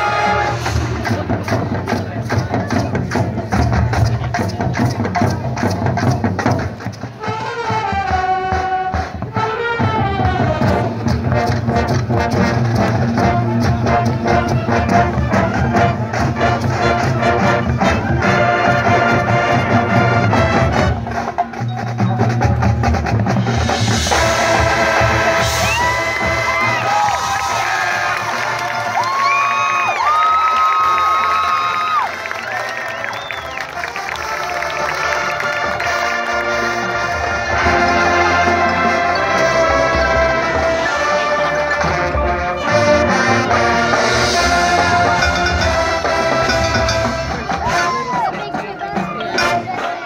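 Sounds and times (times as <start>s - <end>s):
brass holding notes: 0.0s - 1.3s, 7.2s - 21.5s, 23.6s - 29.2s, 33.6s - 50.0s
front-ensemble percussion: 0.0s - 32.6s, 33.6s - 50.0s
drumline beat: 0.0s - 50.0s.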